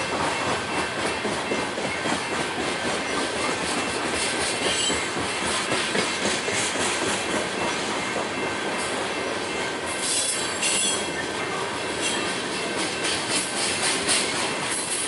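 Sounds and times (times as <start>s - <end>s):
train wheels rumbling on rails: 0.0s - 15.0s
wheel squeal: 10.0s - 11.2s.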